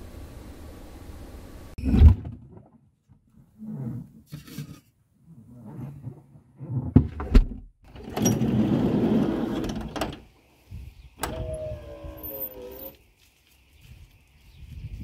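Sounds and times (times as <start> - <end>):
sliding door rolling along track: 7.9 - 10.2
falling squeal: 11.2 - 13.0.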